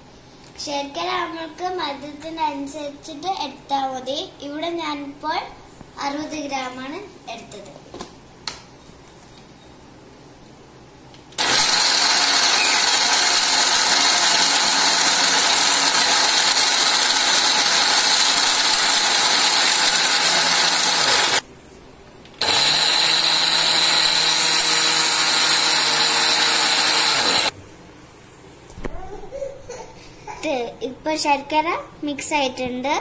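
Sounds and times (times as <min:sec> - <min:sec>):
mixer grinder grinding: 0:11.4 - 0:21.4, 0:22.4 - 0:27.6.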